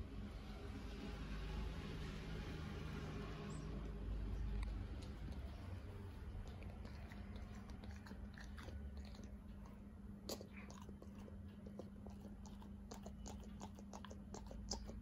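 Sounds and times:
steady low hum: 0.0 - 15.0
dog chewing: 4.4 - 15.0
teeth clicking and snapping: 4.4 - 15.0.

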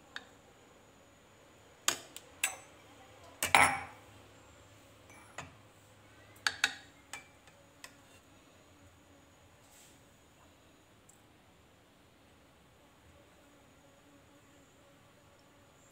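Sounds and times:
spoon clinking against bowl: 2.4 - 2.7, 3.4 - 3.9.

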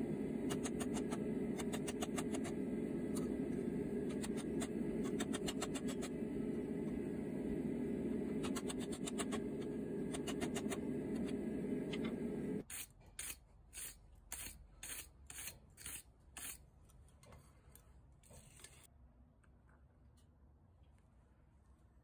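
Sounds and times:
steady low rumble: 0.0 - 12.6.

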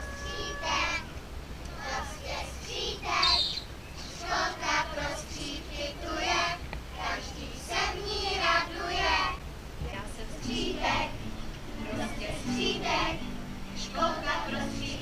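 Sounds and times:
young children's voices: 0.0 - 5.3.

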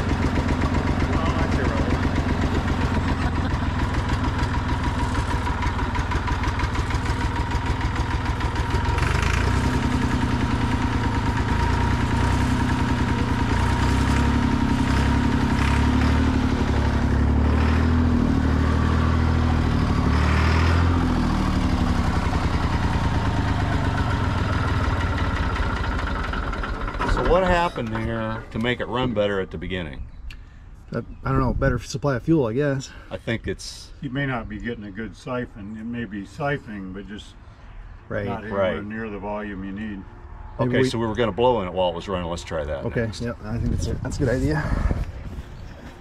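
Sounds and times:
diesel tractor engine running roughly: 0.0 - 29.5.

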